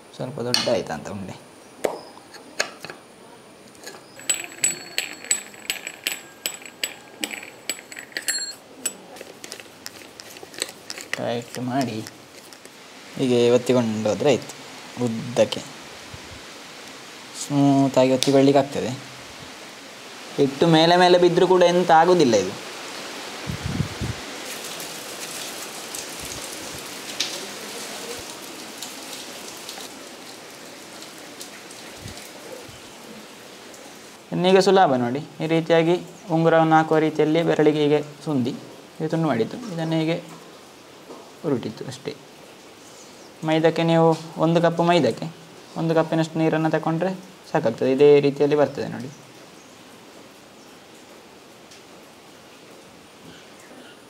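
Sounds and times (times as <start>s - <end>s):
steady rain: 3.1s - 54.0s
light metallic clinks: 3.8s - 12.7s.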